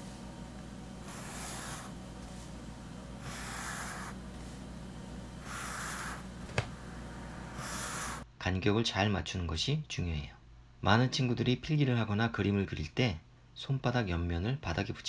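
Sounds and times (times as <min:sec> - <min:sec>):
pencil drawing on paper: 0:01.0 - 0:02.4, 0:03.2 - 0:04.6, 0:05.4 - 0:06.3, 0:07.6 - 0:08.2.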